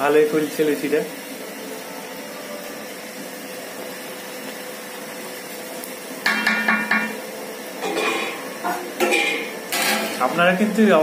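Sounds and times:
food deep-frying in oil: 0:00.0 - 0:11.0
skimmer clanking against pan: 0:06.2 - 0:07.2, 0:07.8 - 0:10.3.

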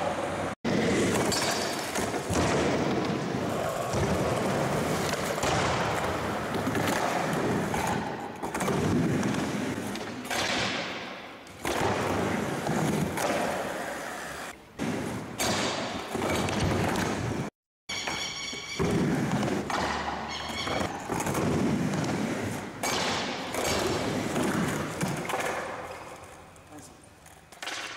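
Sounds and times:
skateboard wheels rumbling: 0:00.0 - 0:10.0, 0:20.8 - 0:22.8.

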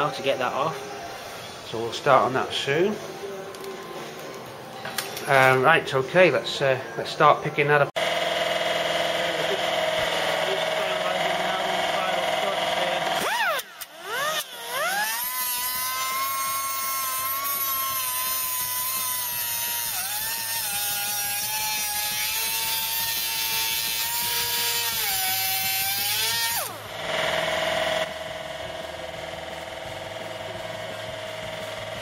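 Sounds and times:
angle grinder cutting sheet steel: 0:08.0 - 0:32.0.

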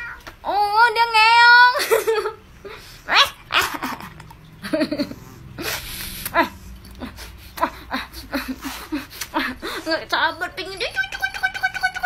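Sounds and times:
puffs of breath: 0:05.2 - 0:07.6.

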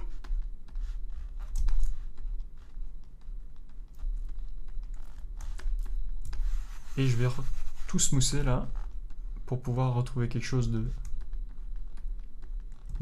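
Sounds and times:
steady low hum: 0:00.0 - 0:13.0
stylus tapping on tablet: 0:11.0 - 0:13.0.

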